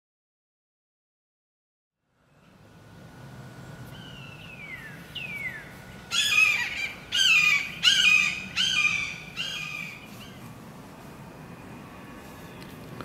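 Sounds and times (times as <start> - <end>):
hawk screaming: 6.1 - 10.0.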